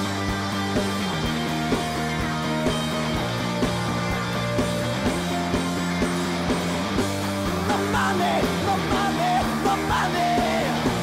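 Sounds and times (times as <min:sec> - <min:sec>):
bass guitar: 0:00.0 - 0:11.0
electric guitar: 0:00.0 - 0:11.0
steady drum beat: 0:00.0 - 0:11.0
person singing: 0:07.6 - 0:11.0.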